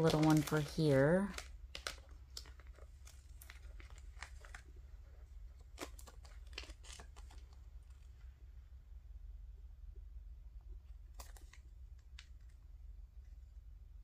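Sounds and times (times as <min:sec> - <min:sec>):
paper rustling and clicks: 0:00.0 - 0:04.8, 0:05.5 - 0:08.1, 0:11.1 - 0:12.6
low steady hum: 0:00.0 - 0:14.0.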